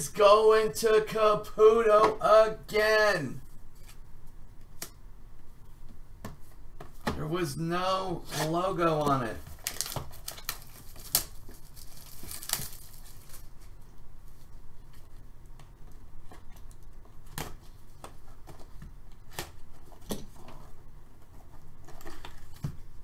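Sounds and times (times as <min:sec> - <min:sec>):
plastic wrap crinkling: 0:09.4 - 0:13.8
blade slitting shrink wrap: 0:09.6 - 0:13.4.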